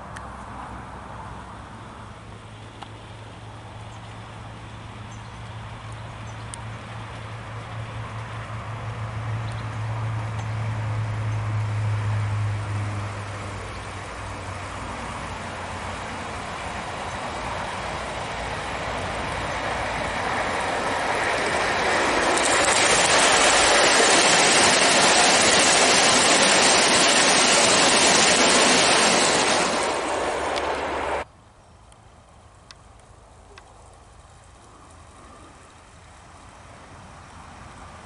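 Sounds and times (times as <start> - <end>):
model train rushing and rattling: 12.6 - 31.3.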